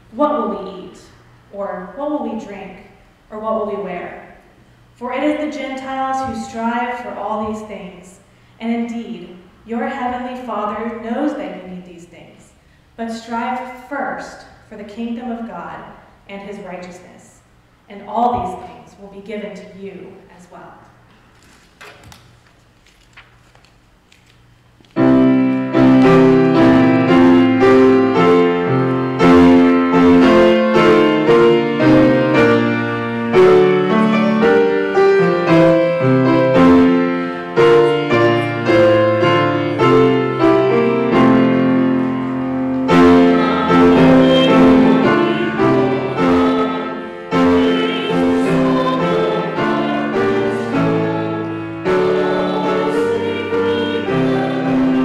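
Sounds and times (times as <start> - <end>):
grand piano playing: 25.0 - 55.0.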